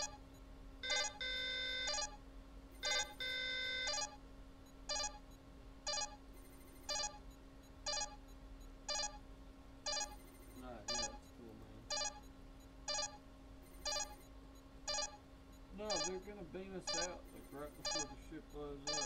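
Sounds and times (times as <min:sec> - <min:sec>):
long alert tones: 0:00.0 - 0:02.2, 0:02.8 - 0:04.2, 0:07.8 - 0:08.3, 0:09.9 - 0:14.3, 0:14.9 - 0:19.0
short electronic beeps: 0:00.0 - 0:02.2, 0:02.8 - 0:05.3, 0:05.9 - 0:09.2, 0:09.9 - 0:19.0
steady low hum: 0:00.0 - 0:19.0.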